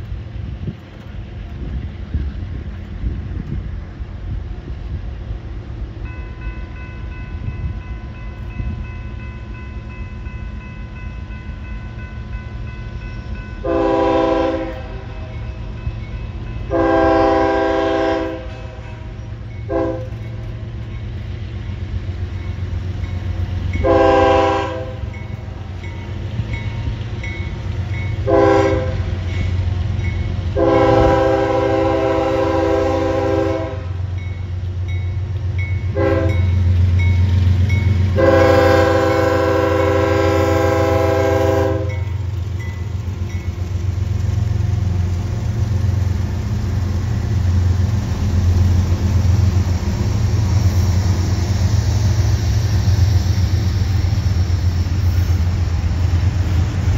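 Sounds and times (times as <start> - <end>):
locomotive engine rumble: 0.0 - 56.9
crossing signal bell ringing: 6.0 - 17.6, 18.8 - 30.5, 34.1 - 40.4, 41.8 - 44.0
train air horn chords: 13.6 - 15.3, 16.7 - 20.2, 23.8 - 25.1, 28.2 - 29.2, 30.6 - 34.1, 35.9 - 36.5, 38.1 - 42.2.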